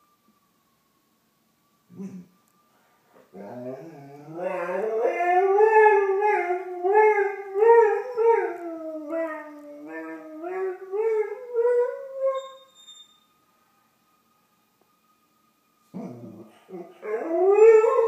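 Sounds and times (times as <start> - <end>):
distant emergency sirens: 0.0 - 18.0
dog howling: 3.4 - 12.6, 16.0 - 18.0.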